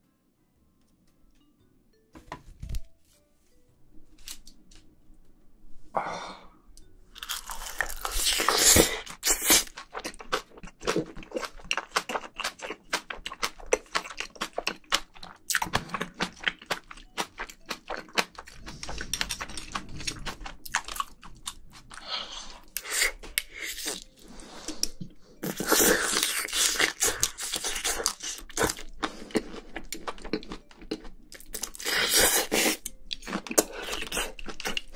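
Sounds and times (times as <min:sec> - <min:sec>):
person chewing food: 0:07.2 - 0:34.9.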